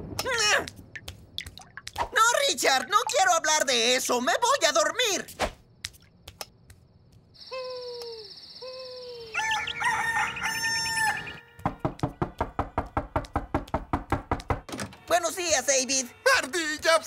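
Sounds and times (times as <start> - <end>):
cartoon rooster crowing: 9.0 - 11.4
rapid knocks on a door: 11.6 - 14.7.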